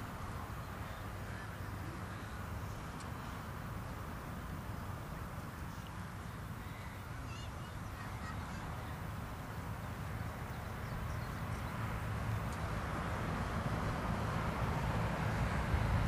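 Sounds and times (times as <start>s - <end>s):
faint bird calls: 6.5s - 9.2s.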